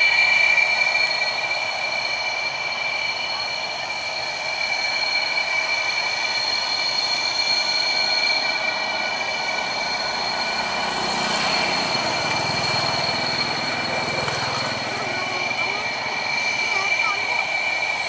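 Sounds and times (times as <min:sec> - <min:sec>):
aircraft turbine whine: 0:00.0 - 0:18.0
low engine rumble: 0:00.0 - 0:18.0.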